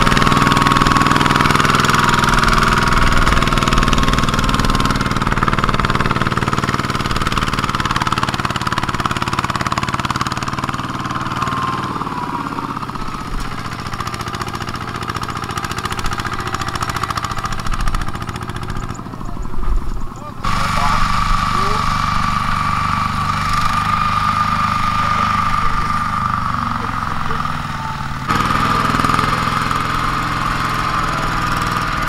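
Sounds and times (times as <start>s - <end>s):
diesel engine running: 0.0s - 32.0s.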